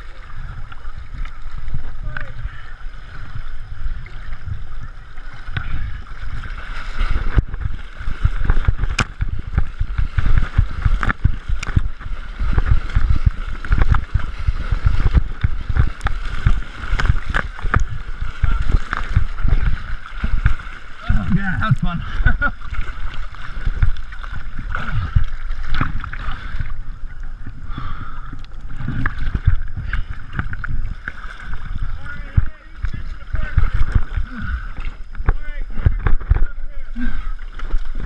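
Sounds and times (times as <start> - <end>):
rushing river water: 0.0 - 38.0
water splashing and sloshing: 0.0 - 38.0
low thumps: 7.2 - 22.5.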